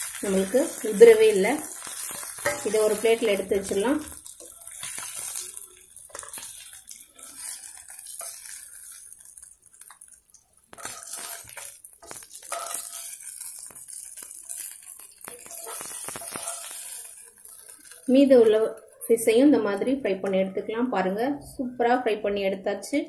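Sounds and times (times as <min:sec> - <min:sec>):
fish sizzling in oil: 0:00.0 - 0:20.0
metal tongs clicking and scraping: 0:10.7 - 0:18.0.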